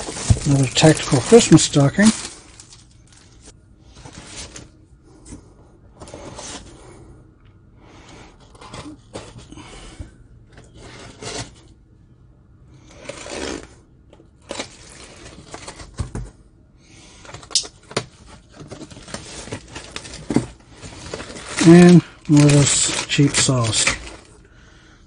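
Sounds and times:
rustling of packing peanuts: 0.0 - 4.7, 14.4 - 16.3, 17.2 - 24.4.

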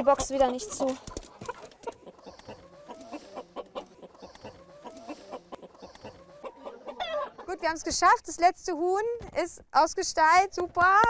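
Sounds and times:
hens clucking: 0.0 - 8.2.

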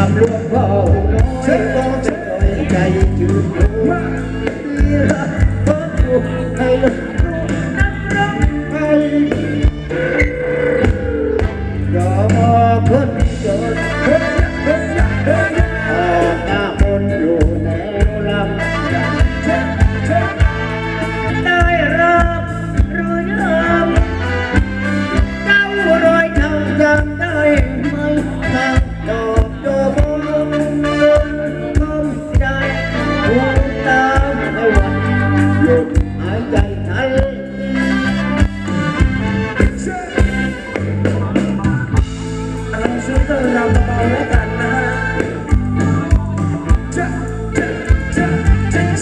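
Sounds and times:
live band dance music: 0.0 - 49.0
steady drum beat: 0.0 - 49.0.

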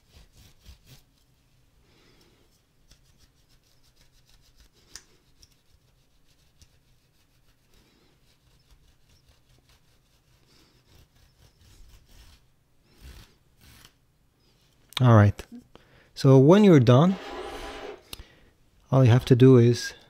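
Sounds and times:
cloth rubbing on plastic: 16.8 - 18.0.

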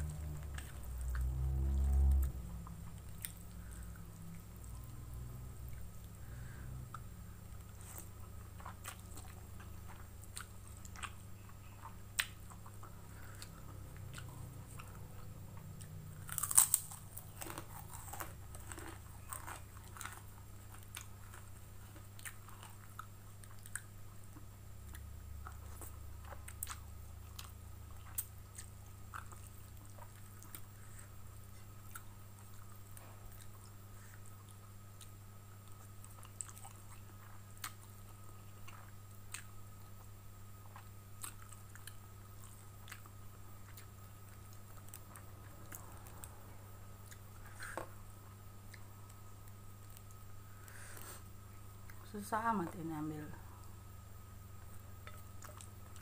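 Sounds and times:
low hum: 0.0 - 56.0
crisp crunching bites: 16.2 - 21.5.

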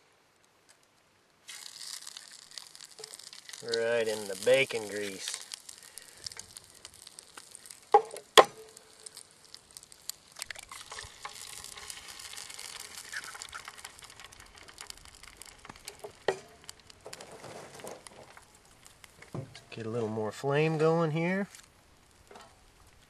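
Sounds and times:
eggs sizzling in grease: 0.7 - 23.0
egg tapping on pan: 5.7 - 12.9.

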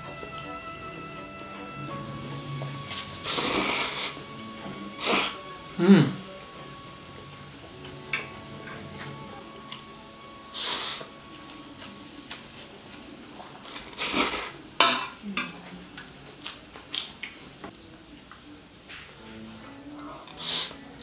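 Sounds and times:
person slurping noodles: 2.9 - 4.2, 5.0 - 6.2, 13.6 - 14.6
person chewing: 10.6 - 14.6, 16.0 - 17.9.

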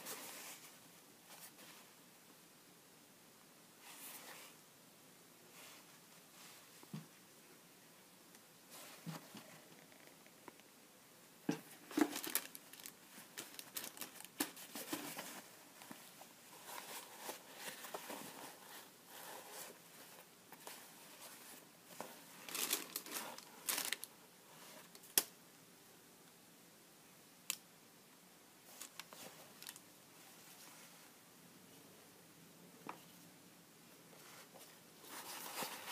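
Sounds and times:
paper tissue rustling: 11.7 - 25.0, 34.2 - 35.9.

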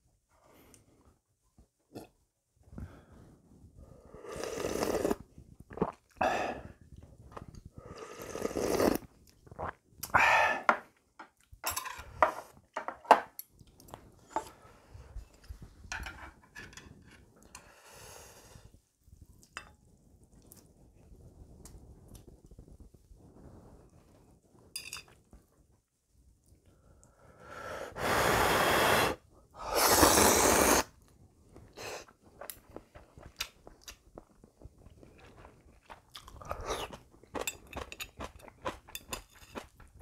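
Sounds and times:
person slurping broth: 4.0 - 10.7, 27.5 - 31.0, 36.1 - 37.0
chopsticks clinking bowl: 37.4 - 39.8.

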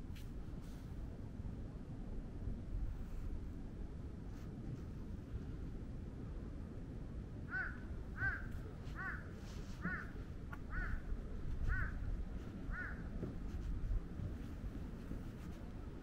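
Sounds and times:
bird calling: 7.5 - 11.0, 11.6 - 12.0, 12.7 - 13.1.

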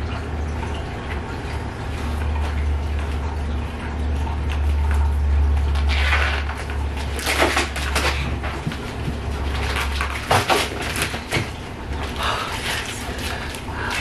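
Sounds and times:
low steady hum: 0.0 - 14.0
duct tape ripping: 5.7 - 8.4.

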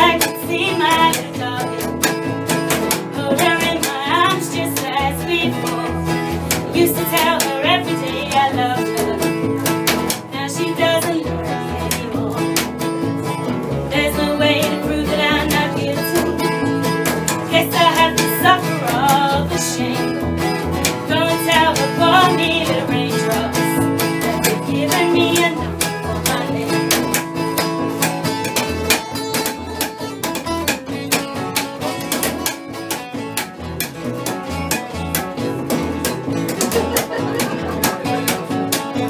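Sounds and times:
acoustic guitar strumming: 0.0 - 39.0
plucked double bass: 0.0 - 39.0
wavering melody line: 21.5 - 26.7.

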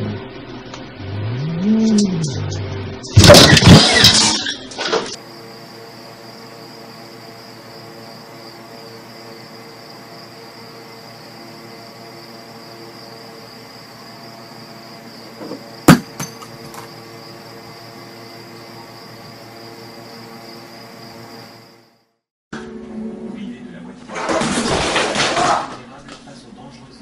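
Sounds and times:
high-pitched whine: 0.0 - 15.6
object knocked over on wood: 15.4 - 16.9, 24.1 - 25.8.

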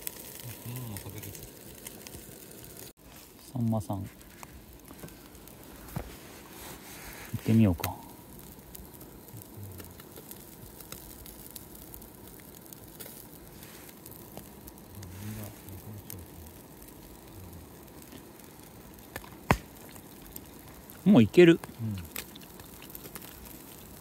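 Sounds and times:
fire crackling: 0.0 - 24.0
small sharp pops: 18.0 - 21.0.

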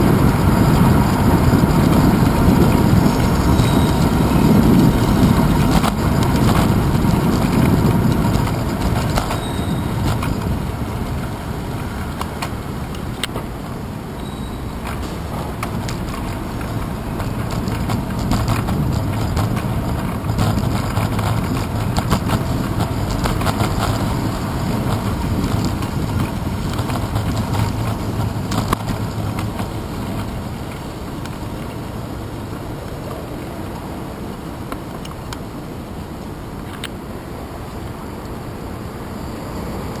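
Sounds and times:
bicycle knocks and rattles: 0.0 - 13.8, 14.7 - 31.9
wind noise: 0.0 - 40.0.

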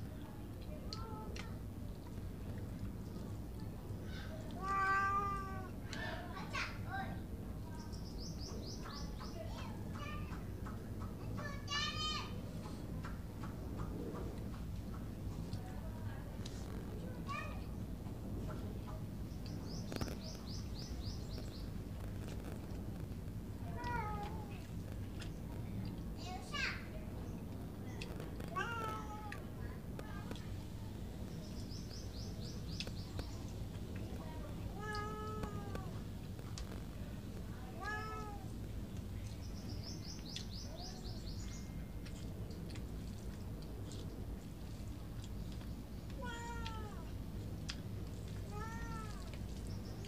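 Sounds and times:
low background rumble: 0.0 - 50.0
bird chirping: 19.2 - 21.8, 31.3 - 33.7, 38.9 - 41.9.

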